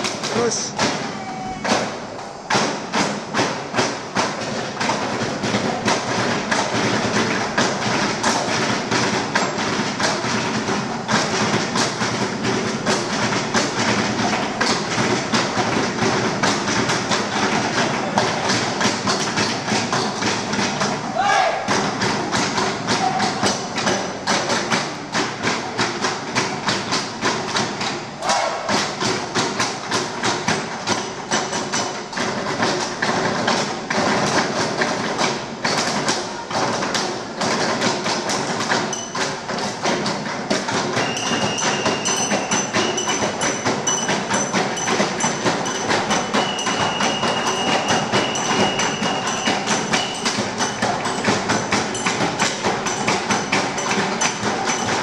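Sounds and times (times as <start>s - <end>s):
cups tapped on wooden desks: 36.7s - 55.0s.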